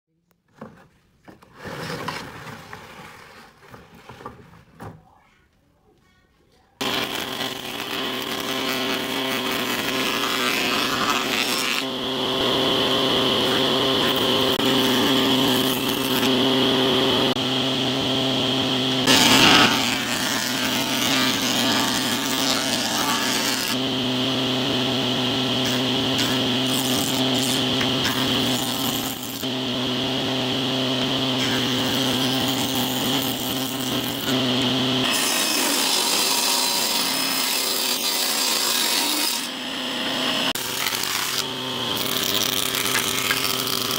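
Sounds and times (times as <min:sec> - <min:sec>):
jointer planing wood: 0:01.3 - 0:04.5, 0:06.8 - 0:43.9
motor humming: 0:06.8 - 0:35.2.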